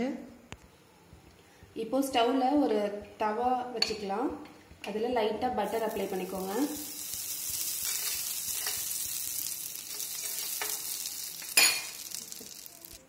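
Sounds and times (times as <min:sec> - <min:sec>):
spoon scraping pan: 0:05.6 - 0:12.7
butter sizzling on hot pan: 0:05.6 - 0:13.0
spoon clinking: 0:06.8 - 0:09.2, 0:09.8 - 0:12.7.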